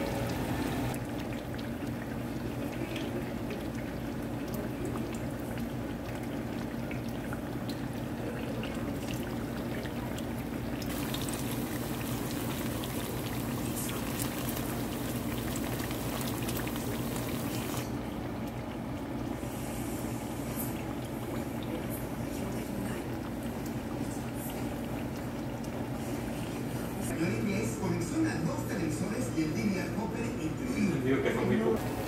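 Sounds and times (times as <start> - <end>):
oil sizzling and crackling: 0.0 - 18.5.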